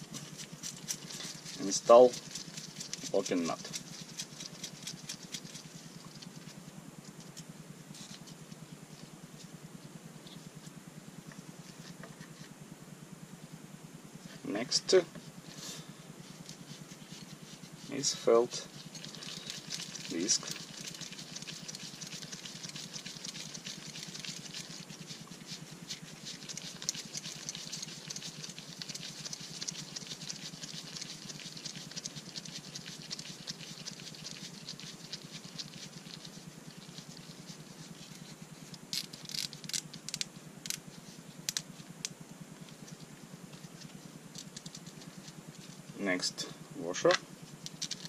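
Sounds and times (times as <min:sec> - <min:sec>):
glove rustling on felt and metal: 0:00.0 - 0:07.3, 0:15.3 - 0:40.1.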